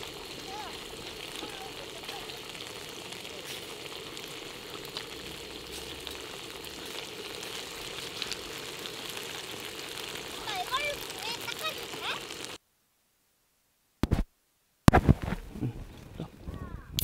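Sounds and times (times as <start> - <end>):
octopus sizzling on griddle: 0.0 - 12.6.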